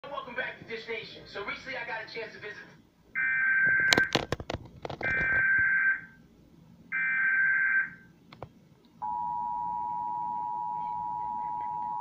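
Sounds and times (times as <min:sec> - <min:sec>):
two-tone attention signal: 0:09.0 - 0:12.0.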